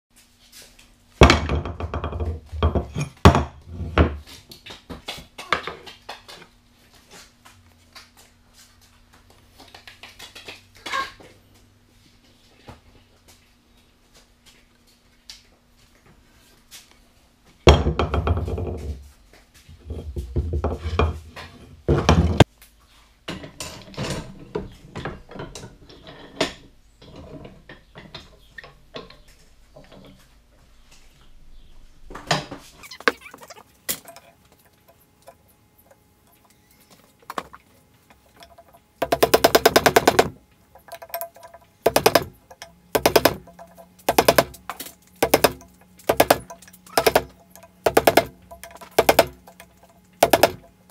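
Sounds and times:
metal tools clanking on workbench: 0:33.9 - 0:36.6, 0:37.2 - 0:50.8.

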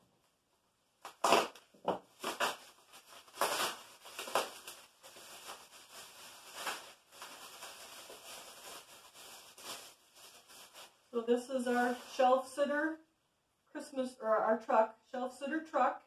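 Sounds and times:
bubble wrap crinkling: 0:01.0 - 0:12.4.

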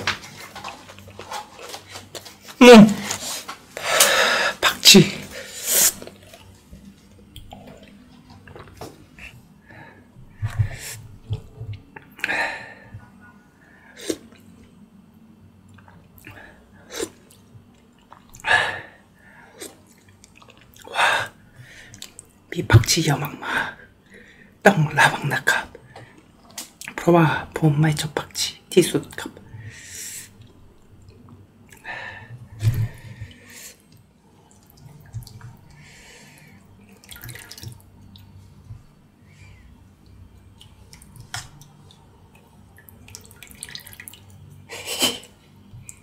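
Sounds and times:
quiet chewing: 0:05.9 - 0:09.4, 0:19.6 - 0:20.9, 0:33.2 - 0:35.8, 0:40.0 - 0:44.4
wet spooning and dripping: 0:40.0 - 0:44.5.

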